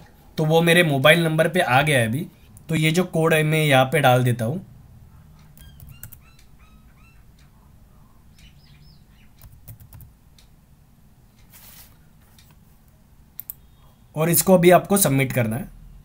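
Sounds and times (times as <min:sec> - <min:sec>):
small birds chirping: 0:05.1 - 0:09.8
keyboard keystrokes: 0:05.4 - 0:06.5, 0:09.4 - 0:10.1.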